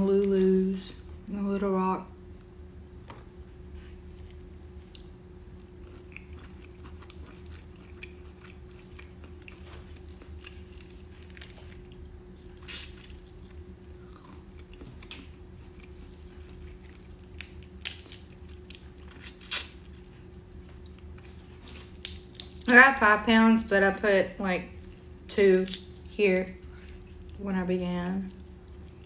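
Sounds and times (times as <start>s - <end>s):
low hum: 0.0s - 29.0s
chewing mouth sounds: 4.2s - 22.7s.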